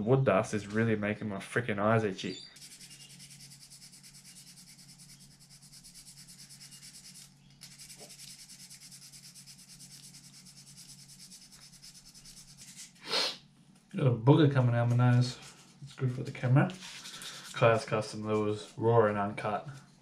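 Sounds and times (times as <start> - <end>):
sandpaper rubbing on wood: 2.6 - 13.4, 16.8 - 18.7.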